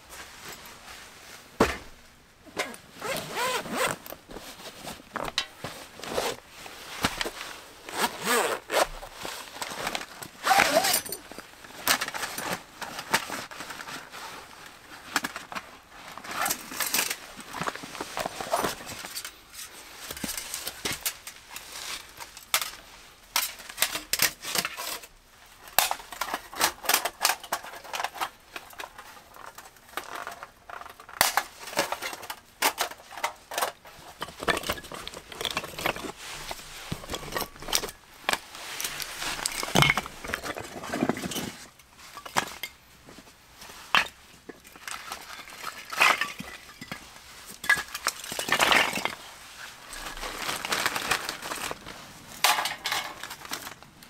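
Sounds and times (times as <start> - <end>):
firewood clattering: 37.0 - 41.6.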